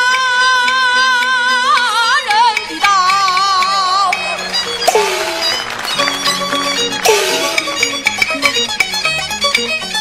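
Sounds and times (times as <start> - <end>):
plucked lutes: 2.3 - 10.0
bowed fiddle melody: 3.0 - 10.0.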